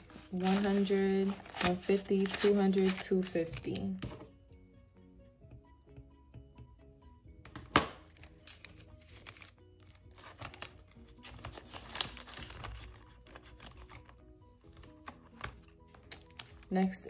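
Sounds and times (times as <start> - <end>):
paper and plastic crinkling: 0.0 - 4.3, 8.0 - 17.0
soft background music: 0.0 - 17.0.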